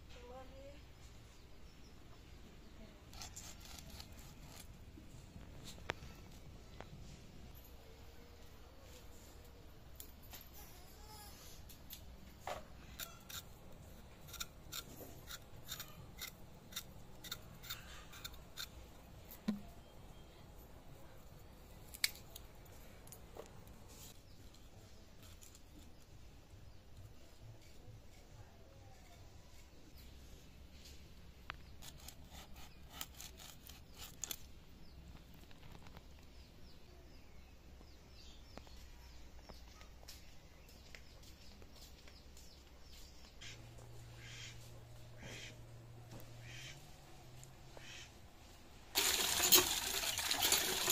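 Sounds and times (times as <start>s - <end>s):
knife scraping taro skin: 3.1s - 4.8s, 12.9s - 13.5s, 14.2s - 18.8s, 31.7s - 34.5s
small birds chirping: 12.8s - 46.7s
blade scraping clicks: 14.2s - 18.8s.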